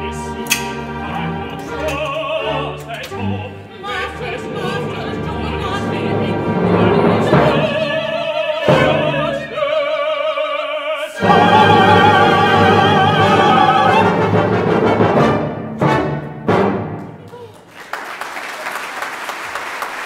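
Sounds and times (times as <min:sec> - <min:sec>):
operatic duet singing: 0:00.0 - 0:14.6
orchestra playing: 0:00.0 - 0:17.5.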